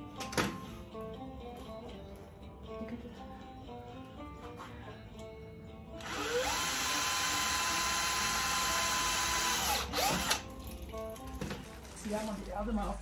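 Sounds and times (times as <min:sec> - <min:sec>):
guitar music: 0:00.0 - 0:07.0, 0:09.7 - 0:13.0
electric motor whining: 0:06.0 - 0:10.4.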